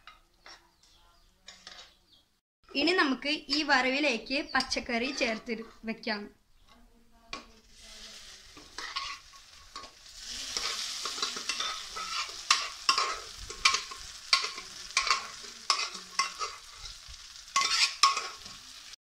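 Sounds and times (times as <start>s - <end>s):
spoon scraping metal pot: 3.4s - 3.8s, 4.5s - 6.0s, 8.6s - 17.0s, 17.6s - 18.6s
food sizzling in frying pan: 7.4s - 19.0s.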